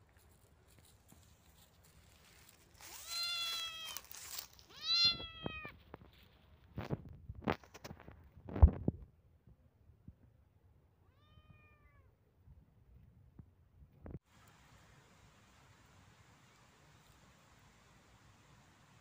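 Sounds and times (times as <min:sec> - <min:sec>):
rustling dry leaves: 0:00.0 - 0:06.9
kitten meowing: 0:03.0 - 0:04.0, 0:04.7 - 0:05.7, 0:11.1 - 0:12.1.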